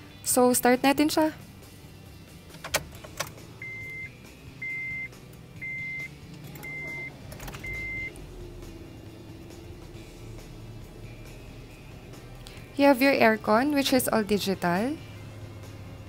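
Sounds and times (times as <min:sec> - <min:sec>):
car engine starting and idling: 0:01.1 - 0:16.0
ignition clicks: 0:02.4 - 0:08.3
dashboard chime beeps: 0:03.6 - 0:08.1.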